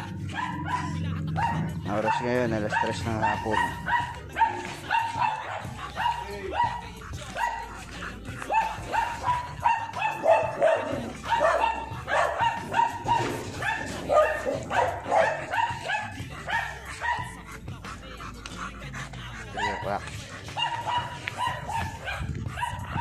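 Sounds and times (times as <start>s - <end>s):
dog barking and yelping: 0.0s - 23.0s.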